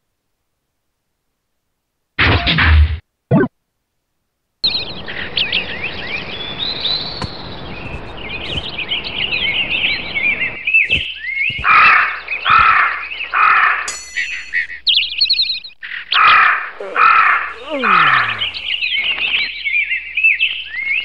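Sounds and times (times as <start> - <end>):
birds chirping and twittering: 4.6 - 21.0
harsh bird calls: 4.6 - 21.0.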